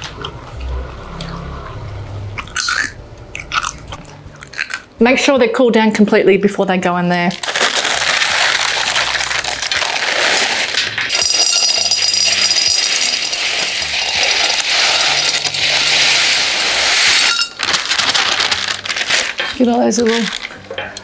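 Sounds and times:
chickpeas rattling into glass: 7.4s - 20.6s.

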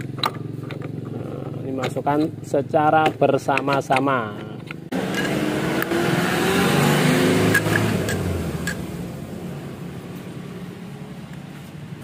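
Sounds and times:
vehicle engine passing: 4.9s - 12.0s.

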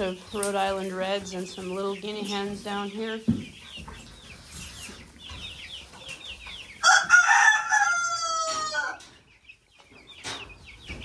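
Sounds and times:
chicks peeping: 0.0s - 11.0s
rooster crowing: 6.8s - 9.0s.

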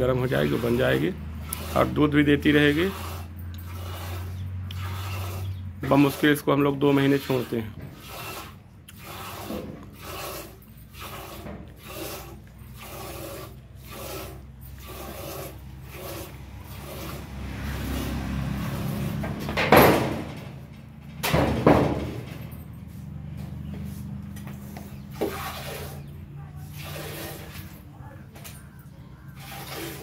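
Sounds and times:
milk squirting into steel bucket: 7.1s - 17.2s, 25.1s - 26.1s, 26.7s - 27.8s, 29.3s - 30.0s.

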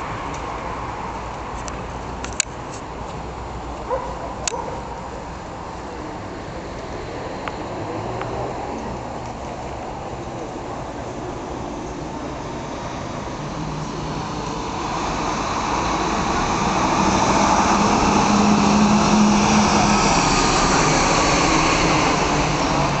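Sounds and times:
vehicle accelerating with rising hum: 6.2s - 23.0s.

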